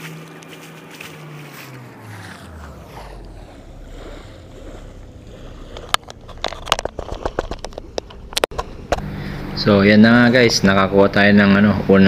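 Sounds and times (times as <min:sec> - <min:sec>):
steady low rumble: 0:00.0 - 0:12.0
sharp clicks and knocks: 0:05.7 - 0:09.1.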